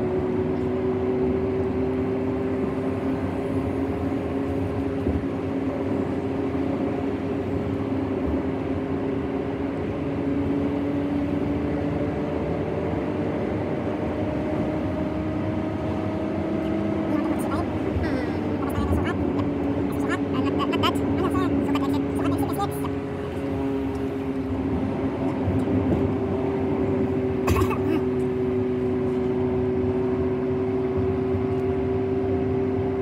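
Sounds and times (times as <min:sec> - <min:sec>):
car cabin road and engine noise: 0:00.0 - 0:33.0.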